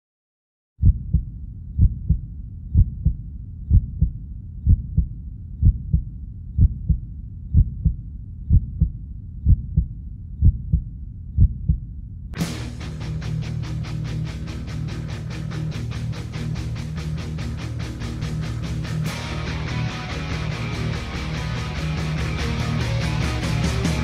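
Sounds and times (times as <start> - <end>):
heartbeat thumps: 0.8 - 12.4
low rumble: 0.8 - 19.7
electric guitar rock music: 12.4 - 24.0.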